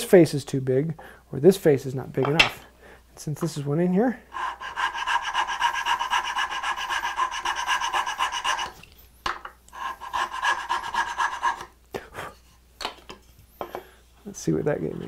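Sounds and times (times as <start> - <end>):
hand file rasping on wood: 4.3 - 8.8, 9.8 - 11.7.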